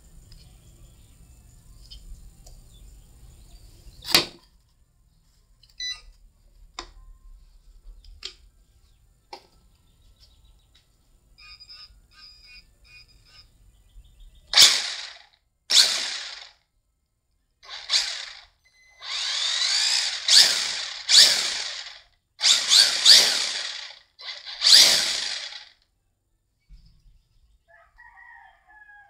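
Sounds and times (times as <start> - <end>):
toy car electric motor revving: 14.5 - 16.6, 17.6 - 25.8.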